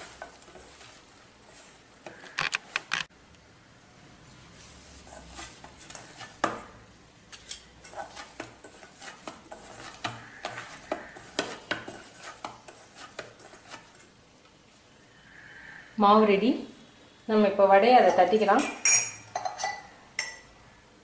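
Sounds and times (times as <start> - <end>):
hand kneading dough: 7.8 - 14.1.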